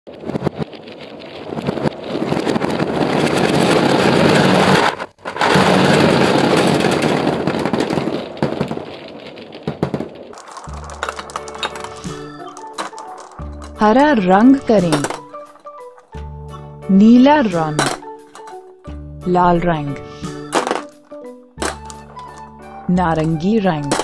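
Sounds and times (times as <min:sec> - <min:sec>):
gumballs clattering and rolling: 0:10.0 - 0:16.2, 0:20.3 - 0:24.0.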